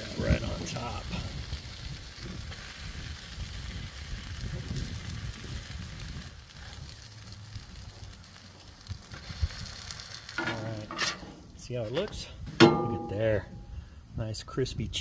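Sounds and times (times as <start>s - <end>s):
food sizzling on griddle: 0.0s - 11.6s.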